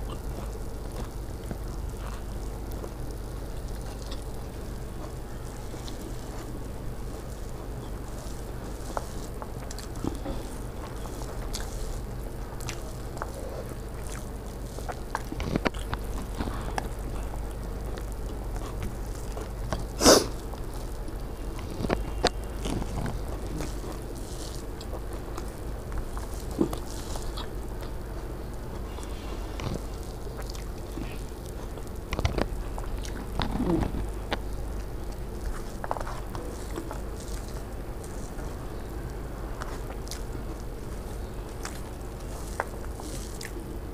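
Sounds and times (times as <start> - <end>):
person chewing food: 0.0 - 43.9
steady low hum: 0.0 - 43.9.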